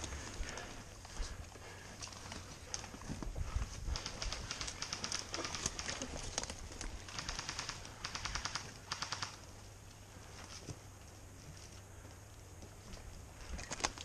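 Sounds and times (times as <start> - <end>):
airsoft guns firing full auto: 7.0 - 9.4.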